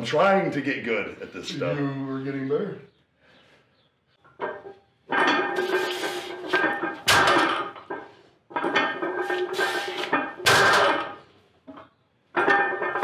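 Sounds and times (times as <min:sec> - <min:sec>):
plates and bar rattling: 0:04.3 - 0:13.0.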